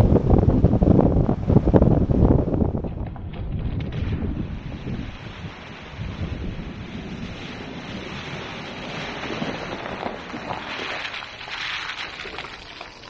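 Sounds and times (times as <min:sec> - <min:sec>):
wind on microphone: 0:00.0 - 0:12.7
water splashing around tyres: 0:03.8 - 0:13.0.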